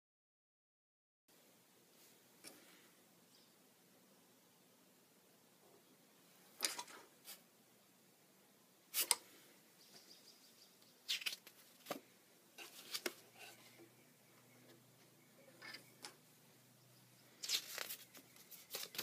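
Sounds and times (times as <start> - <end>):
scrapes and clicks of cards: 11.1 - 12.0, 12.6 - 13.3, 17.4 - 19.0
paper index cards rustling: 11.1 - 13.8, 17.4 - 19.0.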